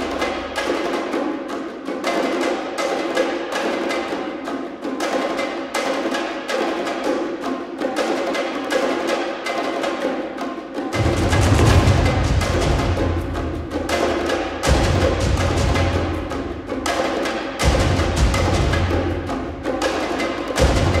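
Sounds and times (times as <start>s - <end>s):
rapid drum strikes: 0.0s - 21.0s
dense instrumental music: 10.9s - 21.0s.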